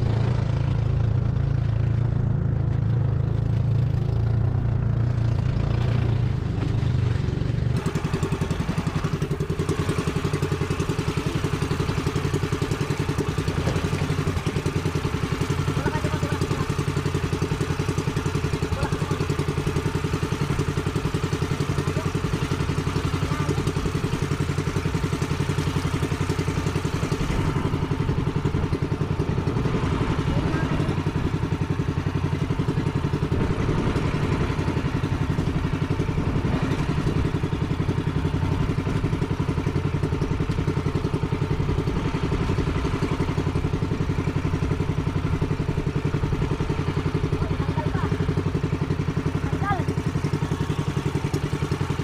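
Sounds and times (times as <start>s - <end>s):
boat engine puttering: 0.0s - 52.0s.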